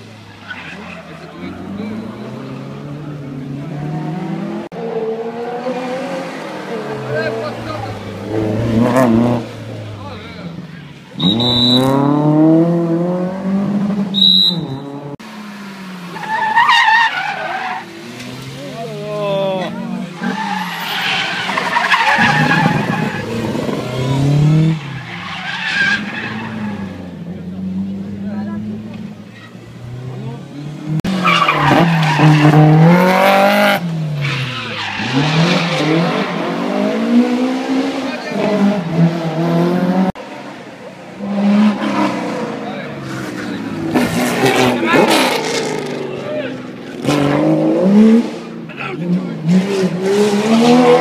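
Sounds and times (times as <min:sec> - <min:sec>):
tyres sliding on tarmac: 0:00.0 - 0:03.4, 0:15.2 - 0:30.5, 0:31.1 - 0:32.6, 0:33.8 - 0:36.6
car engine revving hard: 0:11.2 - 0:14.1, 0:21.3 - 0:25.0, 0:29.9 - 0:40.2, 0:41.2 - 0:51.0
tyres squealing: 0:19.6 - 0:27.0.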